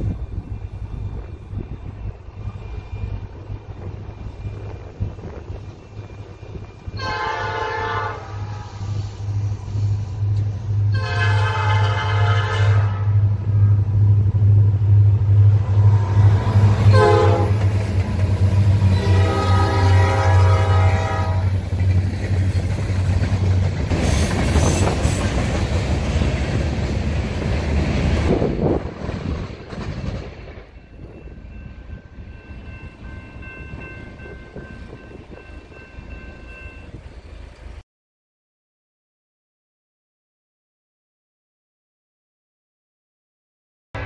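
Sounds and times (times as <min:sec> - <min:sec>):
diesel locomotive engine rumble: 0:00.0 - 0:37.8
locomotive air horn blast: 0:07.0 - 0:09.0, 0:10.9 - 0:13.8, 0:16.8 - 0:17.6, 0:18.9 - 0:21.5.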